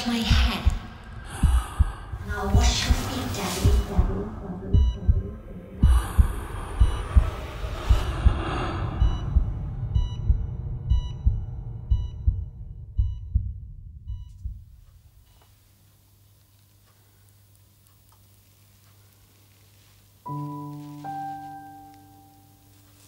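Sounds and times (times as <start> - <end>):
heartbeat thumps: 0.0 - 15.7
hissing swell: 5.4 - 11.9.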